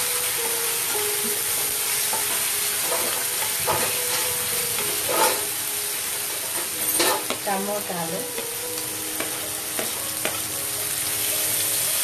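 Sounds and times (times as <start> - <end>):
vegetables sizzling in hot oil: 0.0 - 12.0
spatula scraping a pan: 2.8 - 5.6.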